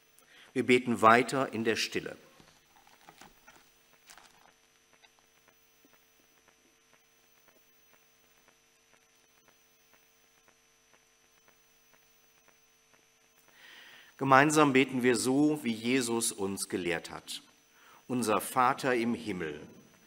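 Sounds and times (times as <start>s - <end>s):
faint steady hum: 0.0s - 20.0s
faint soft ticks: 4.9s - 13.6s.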